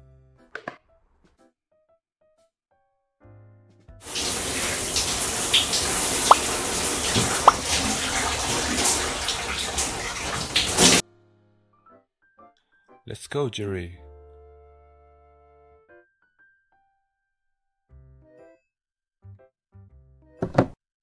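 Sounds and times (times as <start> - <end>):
shower water rushing: 4.0 - 11.0.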